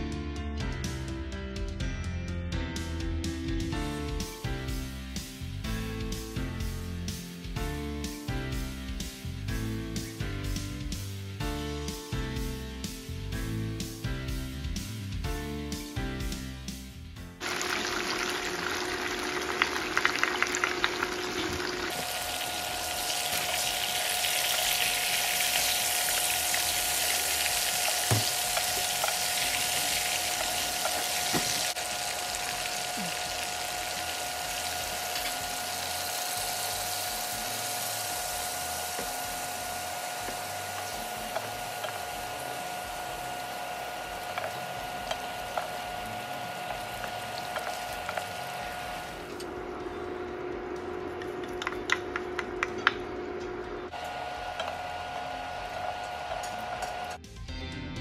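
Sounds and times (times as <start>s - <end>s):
chicken frying in oil: 17.4s - 49.4s, 53.9s - 57.2s.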